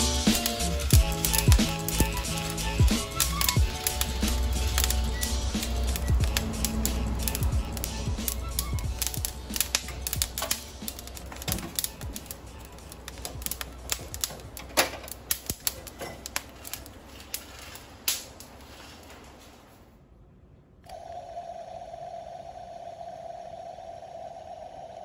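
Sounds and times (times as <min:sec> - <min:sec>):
low hum: 0:00.0 - 0:15.6, 0:20.1 - 0:25.0
metal parts and beans rattling: 0:00.0 - 0:19.6.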